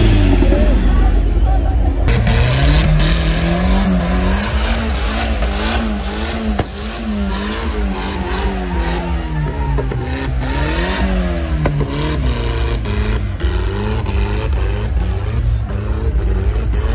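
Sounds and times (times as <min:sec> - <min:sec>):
car engine revving hard: 0:02.0 - 0:16.9
tyres squealing on asphalt: 0:02.1 - 0:16.9.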